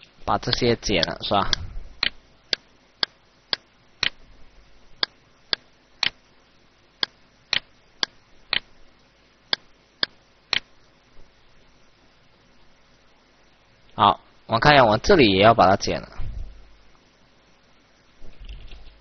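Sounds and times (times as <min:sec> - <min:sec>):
computer mouse clicking: 0:00.5 - 0:04.2.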